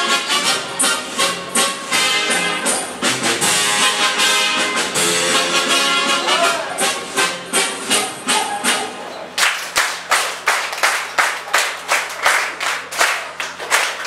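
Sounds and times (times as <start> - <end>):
dance music: 0.0 - 9.1
rhythmic clapping: 9.4 - 14.0.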